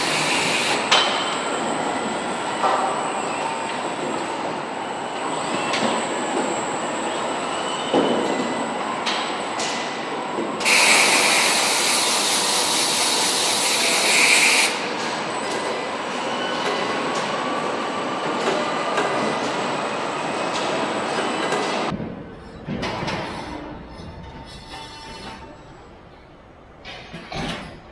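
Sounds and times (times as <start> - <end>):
machinery clatter and hum: 0.0 - 27.9
loud hiss: 10.6 - 14.7.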